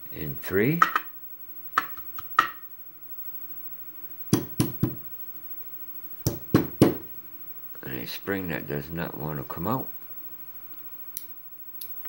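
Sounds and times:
sharp knocks: 4.3 - 5.1, 6.2 - 7.1.

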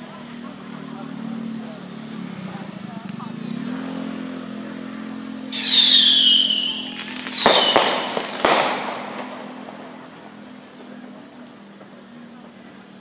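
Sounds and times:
firework cracks: 5.5 - 12.0
whistling fireworks: 5.5 - 13.0.

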